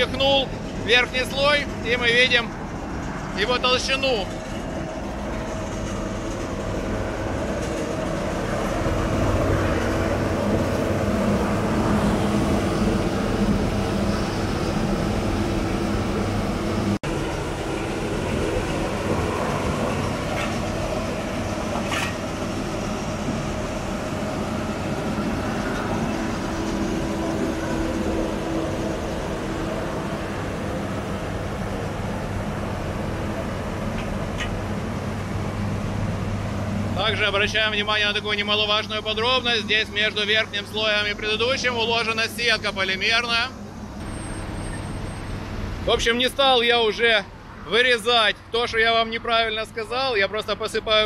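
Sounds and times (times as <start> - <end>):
paver diesel drone: 0.0 - 51.0.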